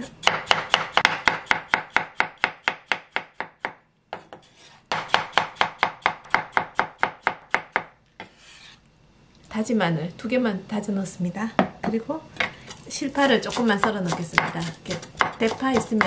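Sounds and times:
knife chopping on wooden board: 0.2 - 8.5, 12.7 - 16.0.

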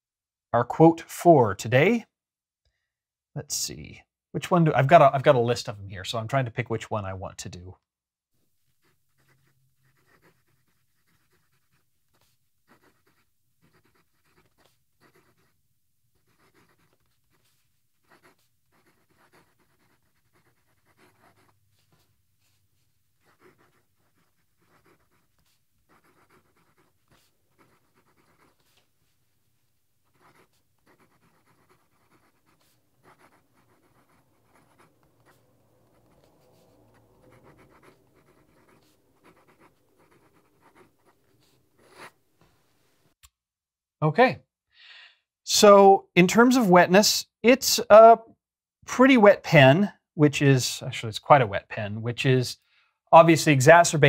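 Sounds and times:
fountain pen scratching on paper: 8.8 - 29.2, 30.0 - 42.2.

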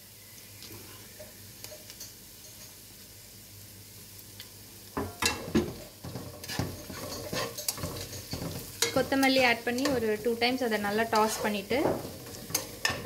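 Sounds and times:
onions sizzling in oil: 0.0 - 13.0
spatula scraping and knocking pan: 5.0 - 13.0.

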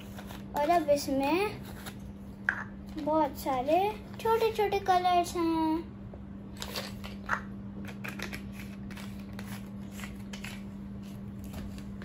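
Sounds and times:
pencils clicking and rattling: 0.0 - 1.1, 6.6 - 10.6.

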